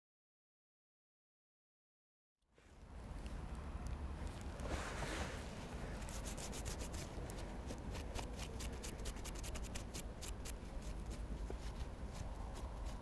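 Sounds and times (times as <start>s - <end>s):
steady low rumble: 2.6s - 13.0s
hands scratching soil off metal: 4.6s - 13.0s.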